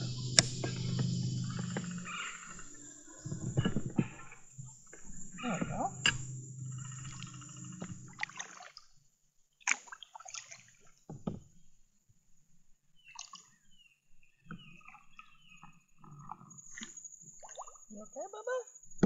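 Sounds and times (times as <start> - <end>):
water dripping off paddle: 0.0 - 8.9, 9.6 - 11.4, 13.1 - 13.6
paddle splashing in water: 0.0 - 9.0, 9.6 - 11.6, 13.0 - 13.8.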